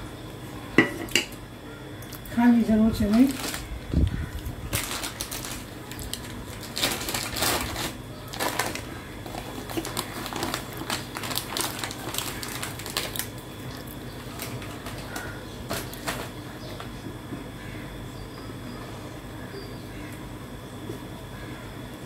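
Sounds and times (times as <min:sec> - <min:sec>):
plastic bag crinkling: 0:02.9 - 0:16.4.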